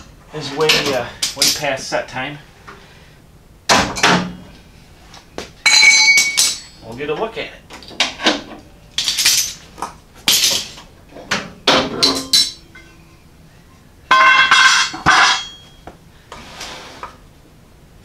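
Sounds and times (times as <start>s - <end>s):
ringing metal clatter: 5.6s - 6.8s, 11.8s - 13.1s, 14.1s - 15.8s
metal clamps clanking on concrete: 5.7s - 6.9s, 10.3s - 13.0s, 14.1s - 15.8s.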